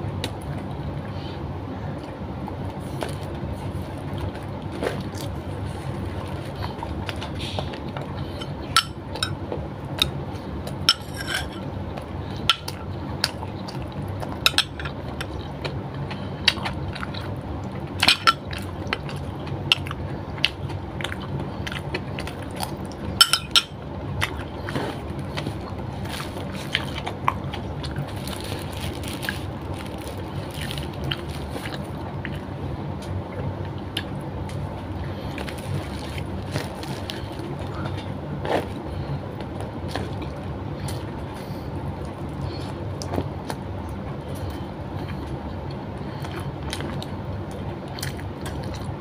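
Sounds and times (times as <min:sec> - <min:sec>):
wet chewing: 0:24.2 - 0:49.0.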